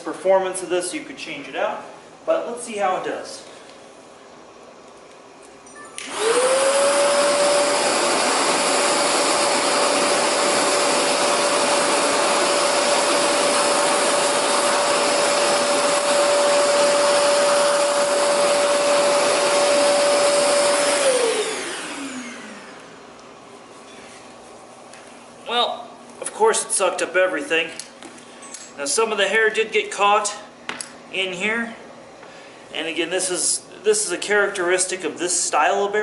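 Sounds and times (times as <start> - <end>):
vacuum motor whine: 5.7 - 23.4.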